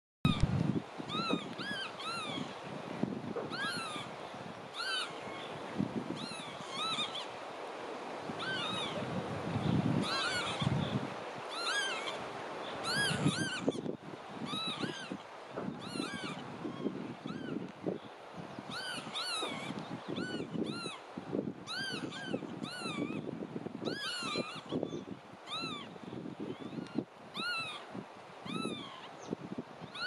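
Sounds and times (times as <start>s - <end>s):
sandpiper whistled calls: 1.1s - 2.6s, 3.5s - 4.1s, 4.7s - 5.5s, 6.2s - 7.4s, 8.4s - 9.0s, 9.6s - 13.8s, 14.4s - 17.7s, 18.7s - 21.0s, 21.6s - 30.0s.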